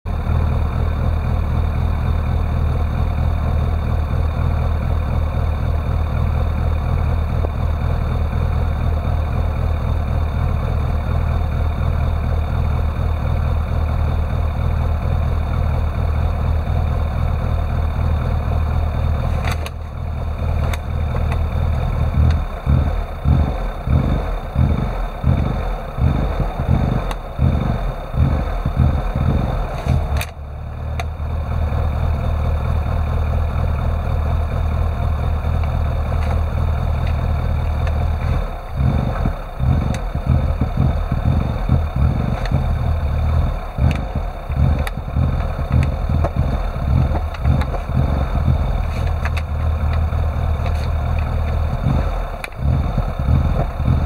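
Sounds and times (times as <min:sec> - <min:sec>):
car engine idling and surging: 0:00.0 - 0:54.0
click: 0:19.4 - 0:19.8, 0:29.8 - 0:30.4, 0:49.0 - 0:50.0.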